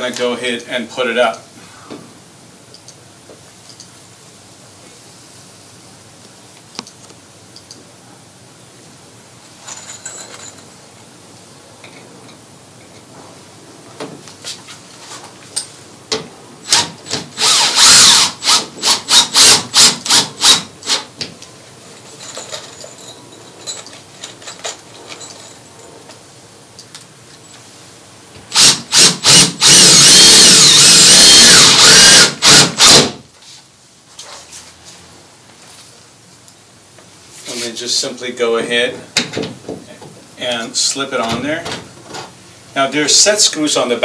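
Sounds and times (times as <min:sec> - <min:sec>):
power drill bursts: 0:16.6 - 0:21.1, 0:28.5 - 0:33.2.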